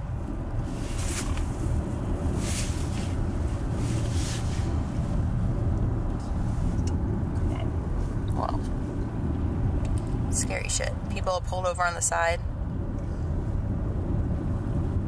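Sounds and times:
engine and road rumble: 0.0 - 15.0.

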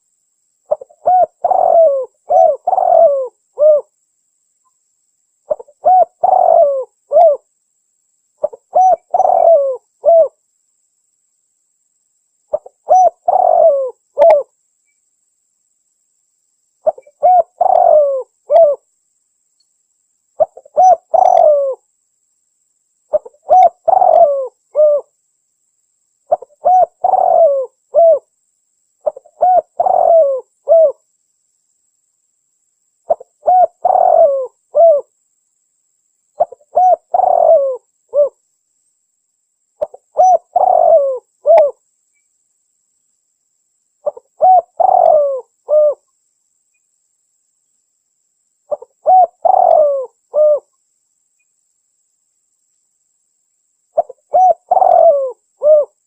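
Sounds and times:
dove cooing: 0.7 - 3.9, 5.5 - 7.5, 8.4 - 10.4, 12.5 - 14.5, 16.8 - 18.8, 20.4 - 21.8, 23.1 - 25.1, 26.3 - 28.3, 29.0 - 31.0, 33.1 - 35.1, 36.4 - 38.4, 39.8 - 41.8, 44.0 - 46.0, 48.7 - 50.7, 54.0 - 56.0.

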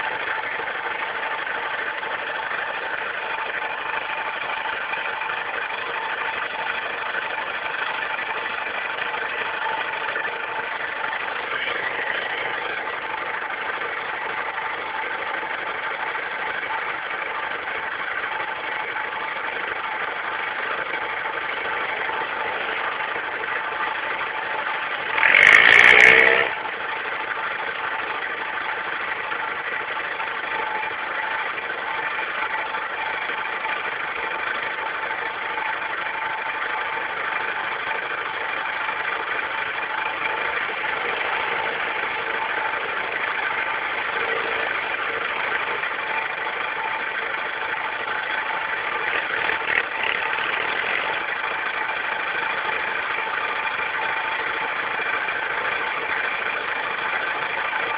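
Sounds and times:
quad bike engine idling: 0.0 - 57.9
engine burst bending in pitch: 25.0 - 26.8.

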